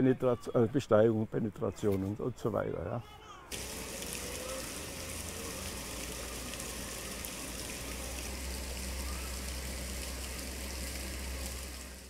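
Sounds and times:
waterfall rushing into pool: 0:03.5 - 0:12.0.

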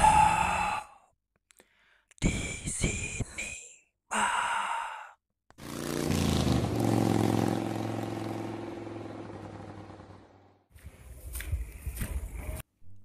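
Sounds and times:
motorcycle engine running: 0:05.6 - 0:10.6.

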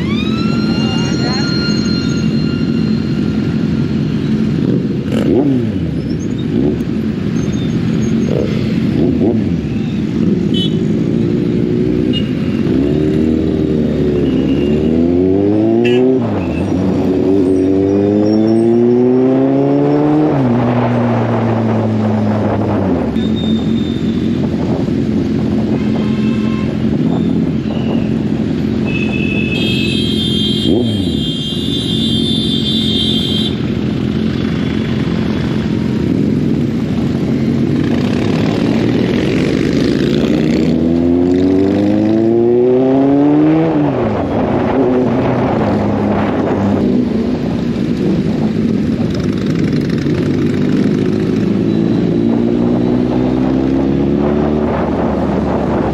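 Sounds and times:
high steady tone: 0:00.0 - 0:03.9
motorcycle engine revving: 0:00.0 - 0:55.9.

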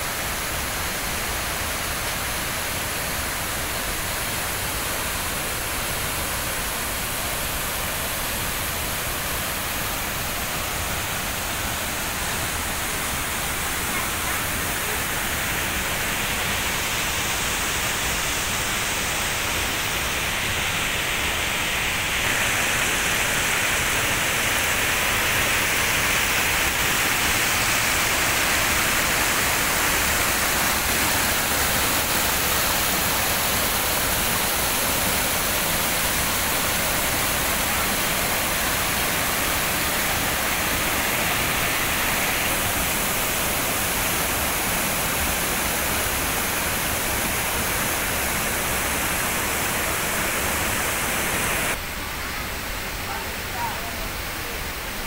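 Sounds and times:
waterfall and rapids rushing: 0:00.0 - 0:55.0.

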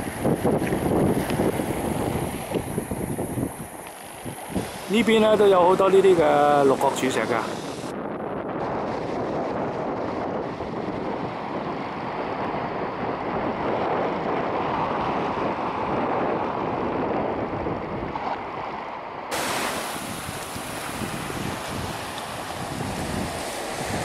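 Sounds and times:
sea waves washing on rocks: 0:00.0 - 0:07.9, 0:19.3 - 0:24.0
wind on microphone: 0:00.0 - 0:24.0.

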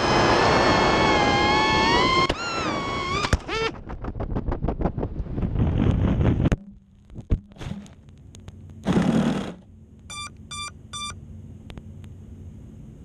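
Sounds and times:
short electronic beeps: 0:10.1 - 0:11.2.

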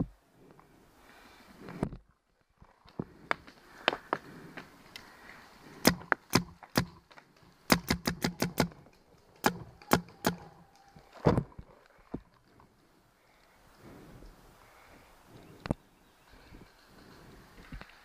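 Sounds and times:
paintball marker firing pops: 0:05.8 - 0:07.0, 0:07.7 - 0:10.6.

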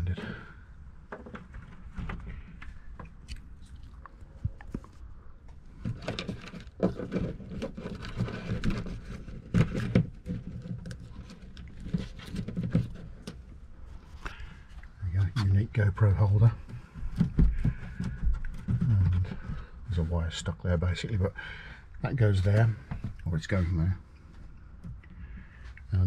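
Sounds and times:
rustling scrapes: 0:04.7 - 0:15.7.

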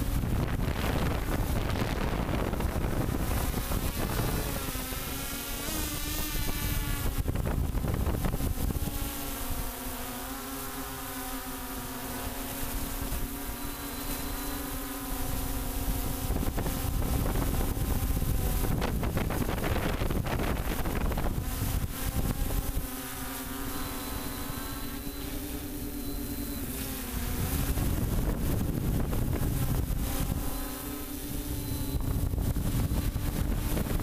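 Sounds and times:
wind buffeting microphone: 0:00.0 - 0:05.1, 0:06.2 - 0:09.0, 0:15.3 - 0:22.9, 0:27.3 - 0:30.5, 0:31.2 - 0:34.0
drone propellers whining: 0:00.0 - 0:34.0.

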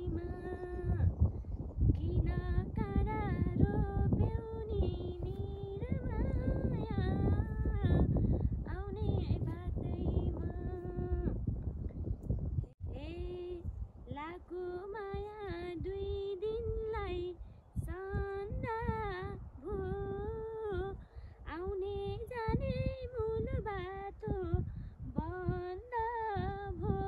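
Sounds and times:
woman singing unaccompanied: 0:00.0 - 0:01.2, 0:01.8 - 0:11.4, 0:12.9 - 0:27.0
breaths: 0:21.0 - 0:21.5, 0:24.7 - 0:25.0.

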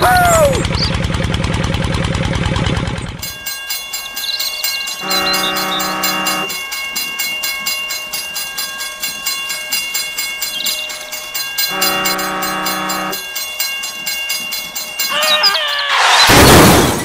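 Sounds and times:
toy train chugging: 0:00.0 - 0:01.2, 0:02.0 - 0:16.2
electronic train whistle: 0:04.9 - 0:06.6, 0:11.6 - 0:13.2, 0:15.1 - 0:16.2.

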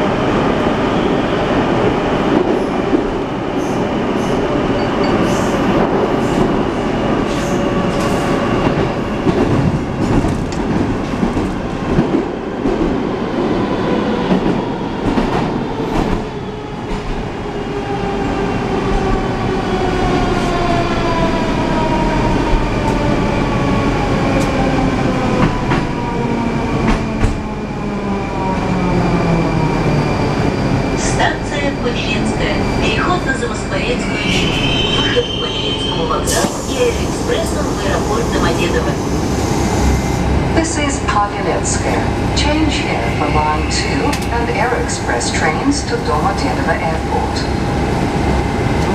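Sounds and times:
train running noise: 0:28.4 - 0:48.9.

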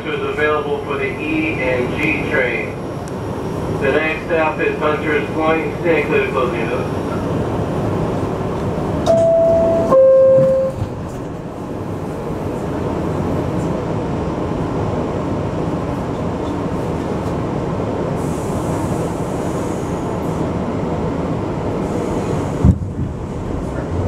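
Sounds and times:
train rumble: 0:00.0 - 0:24.0
two-tone door chime: 0:09.1 - 0:10.8.

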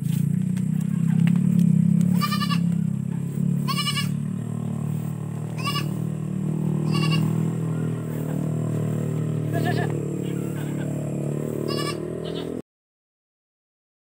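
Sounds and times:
steady low hum: 0:00.0 - 0:12.6
young goat bleating: 0:02.1 - 0:02.8, 0:03.6 - 0:04.3, 0:04.9 - 0:12.6.

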